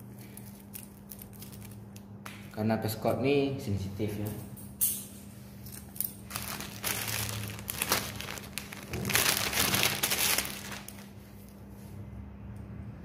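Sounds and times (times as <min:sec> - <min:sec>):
faint steady hum: 0:00.0 - 0:13.0
plastic packaging crinkling: 0:00.2 - 0:02.1, 0:05.7 - 0:11.6.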